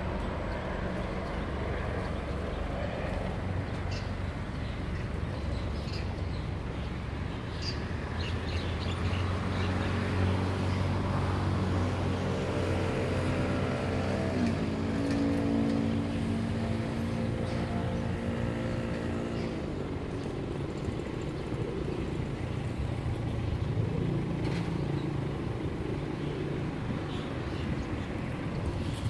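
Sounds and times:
vehicle engine humming: 8.6 - 29.0
higher engine drone: 10.8 - 29.0.

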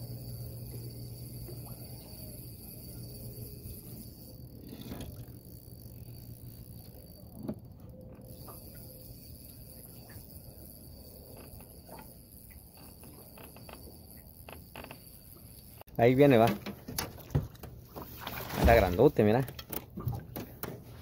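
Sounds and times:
fishing reel ticking: 0.0 - 16.5
low steady hum: 0.0 - 21.0.

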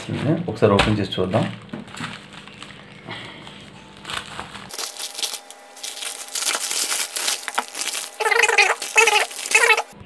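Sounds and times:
plastic mailer crinkling: 1.4 - 3.0, 4.0 - 10.0.

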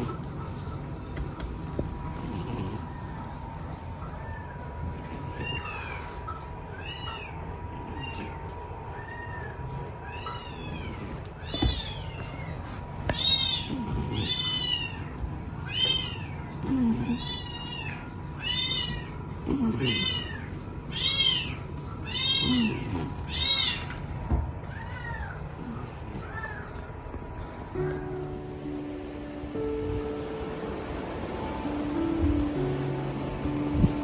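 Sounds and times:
cat meowing: 4.0 - 27.0.

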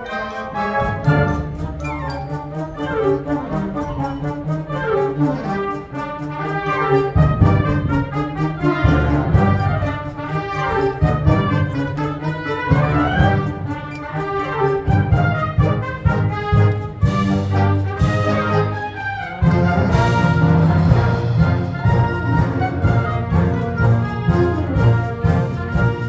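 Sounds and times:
military wind band playing: 0.0 - 26.0.

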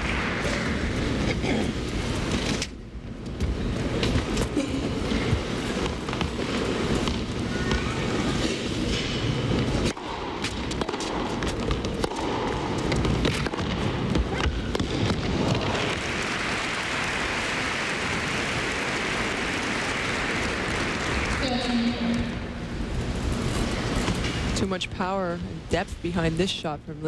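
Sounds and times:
rackets hitting tennis ball: 5.3 - 16.4
audience applauding: 15.3 - 22.1.

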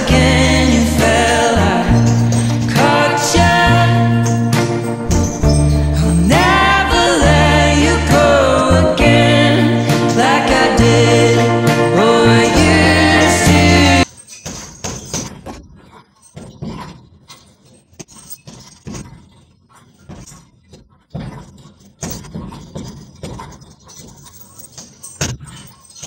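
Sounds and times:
music playing: 0.0 - 14.1
chains jangling: 1.9 - 7.1, 13.0 - 15.4, 21.6 - 26.0.

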